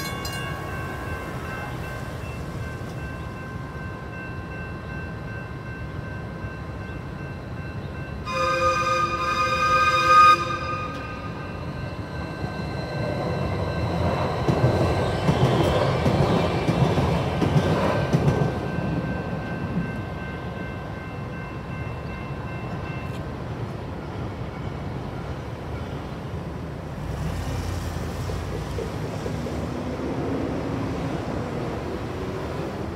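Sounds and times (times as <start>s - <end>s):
crossing signal ringing: 0.0s - 14.8s
light-rail train rumbling past: 0.0s - 32.9s.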